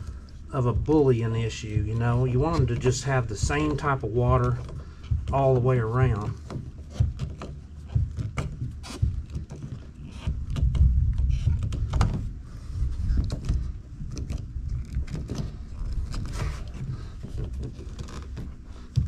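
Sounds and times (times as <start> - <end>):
steady low rumble: 0.0 - 19.0
plastic parts clicking and knocking: 6.0 - 12.3, 13.0 - 19.0.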